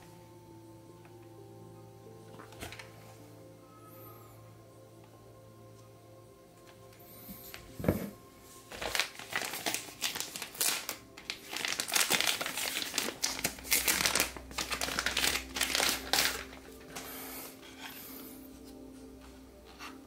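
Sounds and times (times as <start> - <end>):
plastic packaging crinkling: 7.5 - 18.0.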